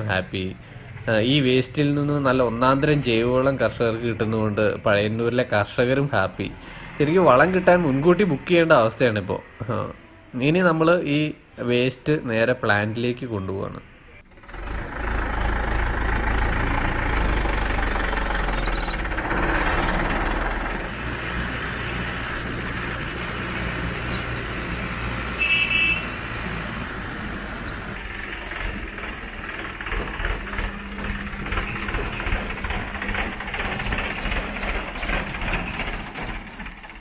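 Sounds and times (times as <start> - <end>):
diesel tractor engine running: 0.0 - 8.9, 14.2 - 37.0
short horn beep: 25.4 - 26.2.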